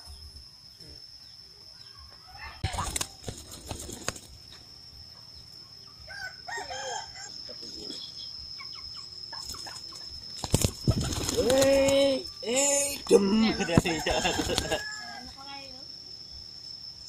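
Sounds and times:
pigeon wings flapping: 2.6s - 4.4s, 10.4s - 12.2s, 13.8s - 14.8s.

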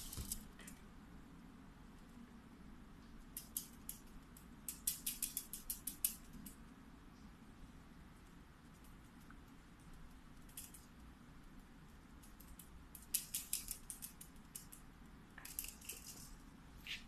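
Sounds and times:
quiet room hum: 0.0s - 17.0s
cats playing light clicks and taps: 3.0s - 6.7s, 8.2s - 17.0s.

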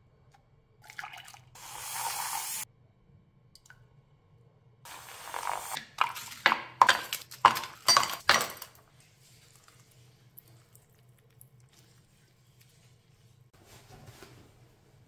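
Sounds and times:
household items clinking: 4.9s - 8.9s.

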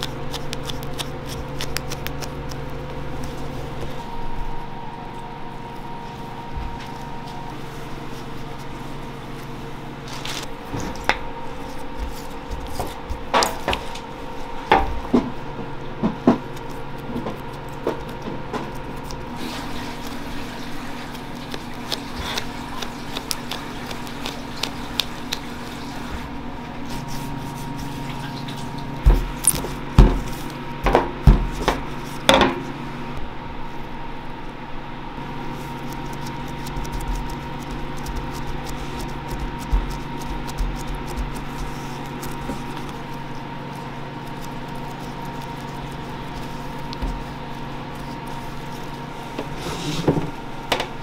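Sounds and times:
kitchen machine hum: 0.0s - 51.0s
hands patting dough: 11.6s - 14.0s, 29.0s - 32.5s, 35.8s - 49.4s.

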